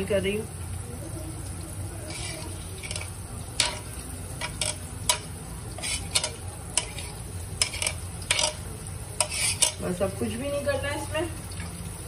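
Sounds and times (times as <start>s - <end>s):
vegetables frying in oil: 0.0s - 12.0s
spatula scraping a pan: 2.0s - 10.6s.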